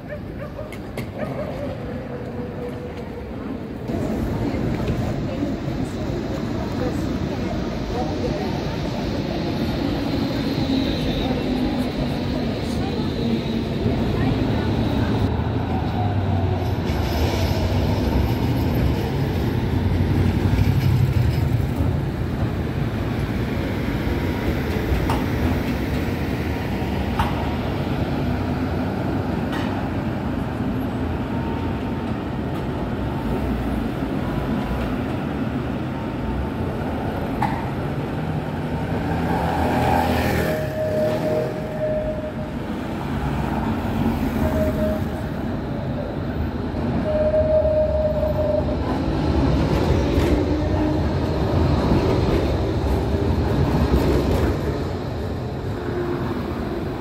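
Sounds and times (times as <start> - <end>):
road traffic: 0.0 - 57.0
tram rumble: 0.0 - 57.0
tram squeal: 6.7 - 21.9, 38.8 - 57.0.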